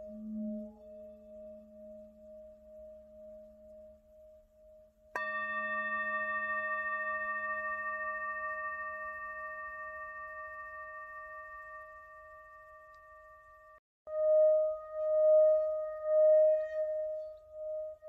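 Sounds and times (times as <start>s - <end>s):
singing bowl struck with mallet: 5.2s - 13.6s
singing bowl ringing: 5.2s - 17.0s.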